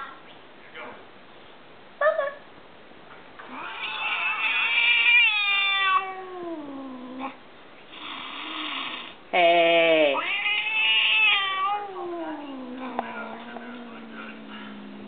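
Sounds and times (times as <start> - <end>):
cat hissing: 3.4 - 15.0
cat yowling: 3.5 - 7.3, 9.7 - 15.0.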